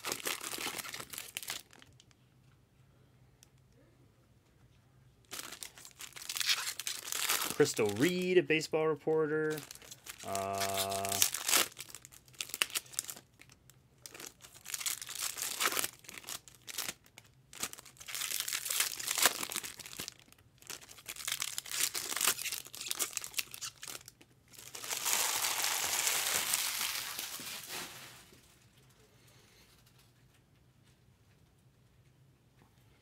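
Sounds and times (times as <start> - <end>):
wrappers crinkling and tearing: 0.0 - 2.1, 5.3 - 8.4, 9.4 - 28.5.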